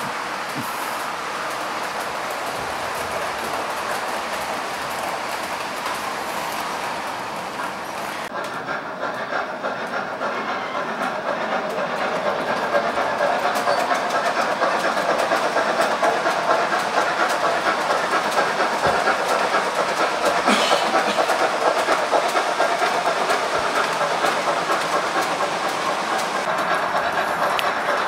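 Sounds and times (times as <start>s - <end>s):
model train rolling on track: 0.0s - 28.0s
steam hiss: 0.0s - 28.0s
wheels clicking over rail joints: 0.0s - 28.0s.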